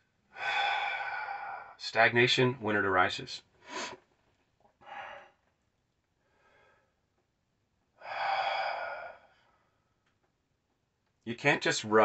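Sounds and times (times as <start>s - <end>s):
man breathing: 0.3s - 1.8s, 3.6s - 4.0s, 4.8s - 5.5s, 6.2s - 7.1s, 8.0s - 9.9s.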